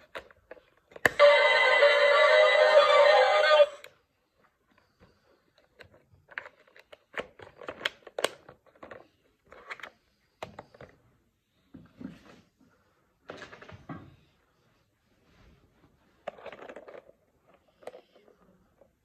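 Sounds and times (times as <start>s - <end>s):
toy speaker electronic sound: 1.1s - 3.9s
plastic clicks and rattles: 5.5s - 11.0s, 16.2s - 18.3s.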